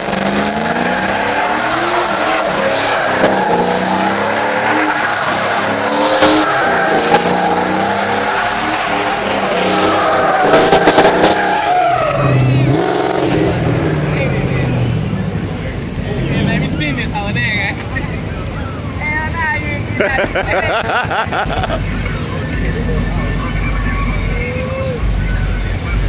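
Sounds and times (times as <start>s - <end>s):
car engine revving hard: 0.0s - 15.4s
tires squealing on asphalt: 0.0s - 19.4s.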